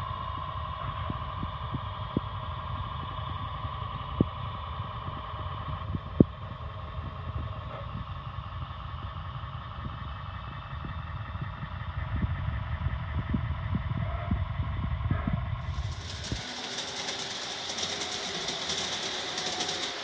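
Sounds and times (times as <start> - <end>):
rolling rumble of train wheels: 0.0 - 20.0
model train motor whine: 15.6 - 20.0
wheels clicking on track: 15.6 - 20.0.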